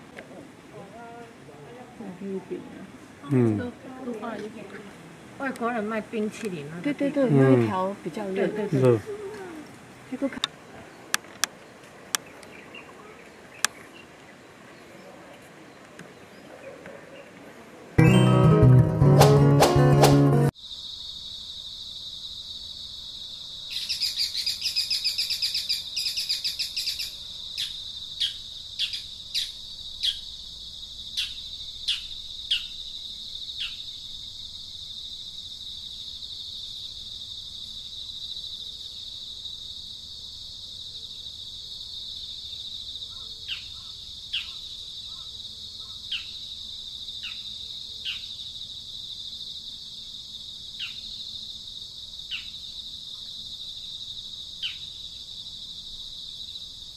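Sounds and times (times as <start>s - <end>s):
birds chirping: 4.5s - 18.2s
high insect drone: 20.5s - 56.9s.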